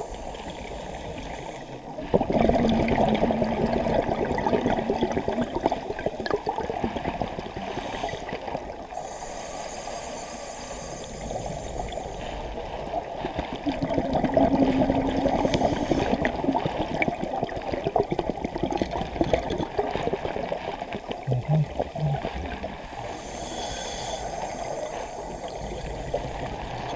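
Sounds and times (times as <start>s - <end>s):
exhaled bubbles gurgling: 0.0s - 26.9s
regulator air hissing: 9.0s - 12.4s, 23.1s - 26.2s.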